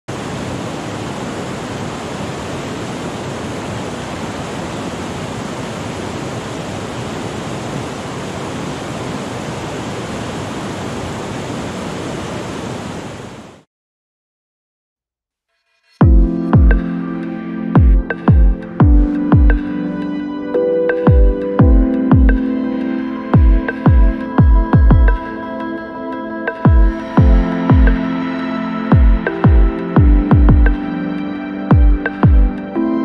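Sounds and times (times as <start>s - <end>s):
rapids rushing over boulders: 0.1s - 13.6s.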